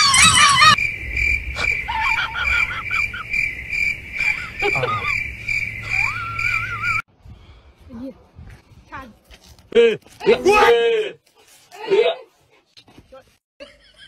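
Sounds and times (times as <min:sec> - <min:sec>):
person screaming and laughing: 0:00.0 - 0:00.8, 0:01.6 - 0:03.3, 0:04.2 - 0:05.2, 0:05.8 - 0:07.0
cricket-like chirping: 0:00.0 - 0:07.0.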